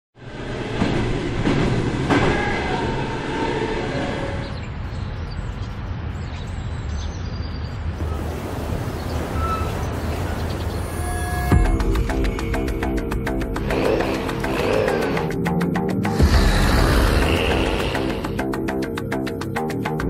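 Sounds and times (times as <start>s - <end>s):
wheels squealing: 8.0s - 11.6s.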